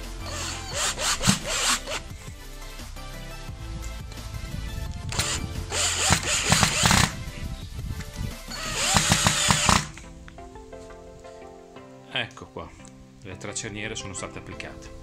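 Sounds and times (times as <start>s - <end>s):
electric screwdriver driving screws: 0.2s - 2.0s, 5.1s - 7.2s, 8.5s - 10.0s.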